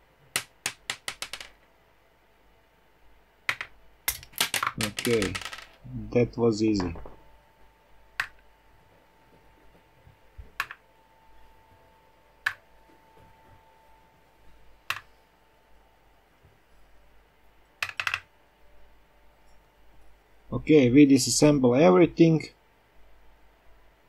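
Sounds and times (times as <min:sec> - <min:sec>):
ball bearings clicking into plastic box: 0:00.4 - 0:01.6, 0:03.5 - 0:05.8, 0:17.8 - 0:18.3.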